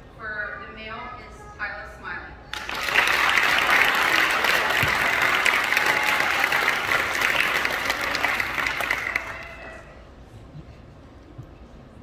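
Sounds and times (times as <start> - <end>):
audience applauding: 2.5 - 9.9.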